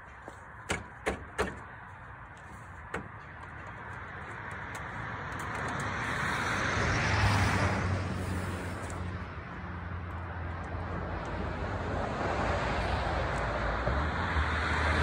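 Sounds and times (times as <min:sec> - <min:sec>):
vehicle passing by: 0:03.7 - 0:15.0.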